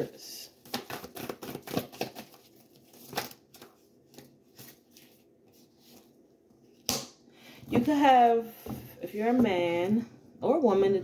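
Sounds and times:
cards being shuffled: 0.6 - 6.9.

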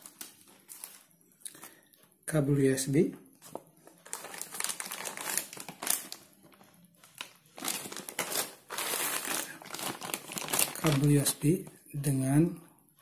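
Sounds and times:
paper and packaging crinkling: 0.0 - 1.8, 3.4 - 11.8.

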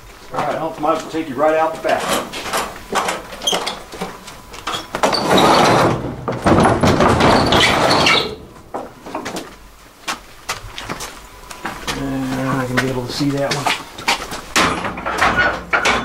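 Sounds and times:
heavy door scraping open: 4.8 - 8.6
knocks: 5.0 - 8.0, 14.5 - 16.0
footsteps on a wooden floor: 8.5 - 14.6.

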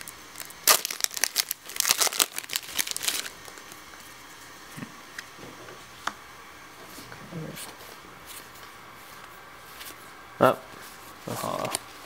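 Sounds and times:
foil wrapper crinkling and tearing: 0.0 - 3.7.

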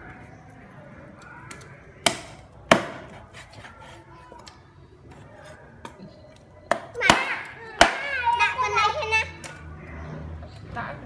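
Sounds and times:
cleaver chopping on wooden block: 2.0 - 3.2.

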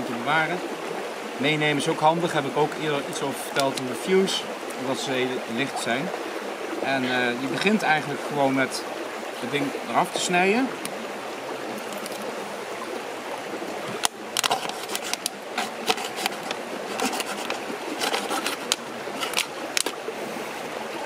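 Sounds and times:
forest stream babbling: 0.0 - 21.0
knife cutting plastic bottle: 14.0 - 19.9.

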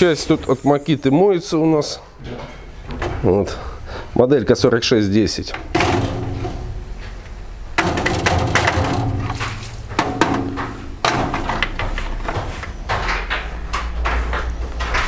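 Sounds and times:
steady low hum: 0.0 - 15.0
plastic knocking against metal basket: 7.8 - 15.0.

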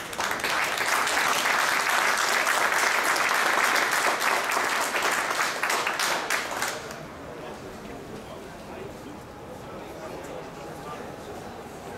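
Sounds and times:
large crowd applauding: 0.0 - 7.0.

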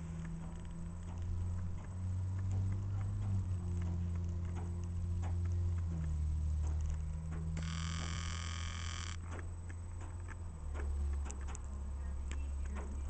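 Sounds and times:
bus engine rumbling: 0.0 - 8.2
light clicks and ticks: 0.1 - 8.2, 8.9 - 13.0.

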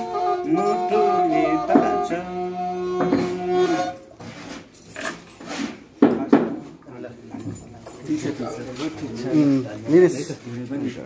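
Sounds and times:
bowed fiddle: 0.0 - 4.6.

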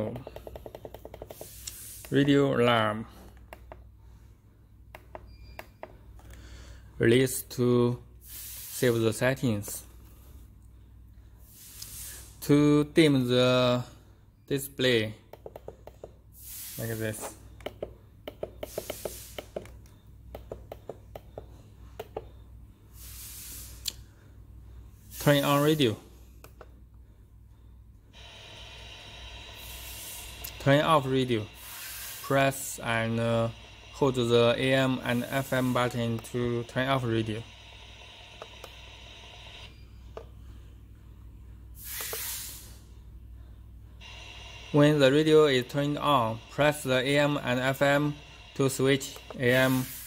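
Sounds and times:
faint radio hiss: 28.2 - 39.7, 44.0 - 50.0.

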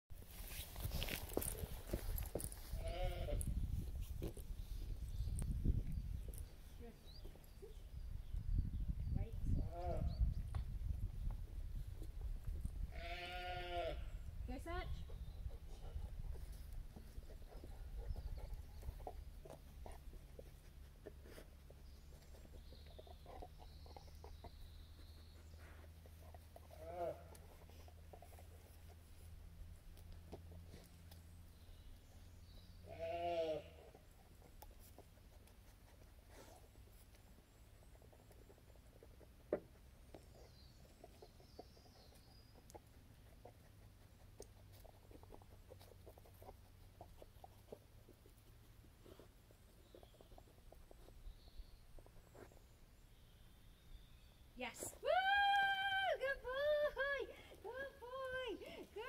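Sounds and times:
dog paws on stony ground: 0.2 - 7.7
soft irregular ticks: 33.8 - 52.6.

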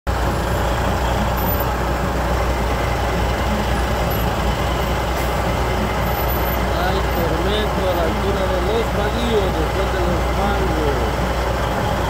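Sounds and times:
truck engine idling: 0.1 - 12.0.

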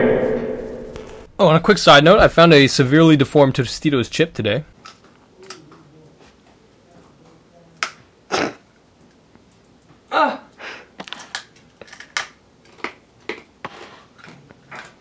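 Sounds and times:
tortilla chip crunching: 11.0 - 15.0.

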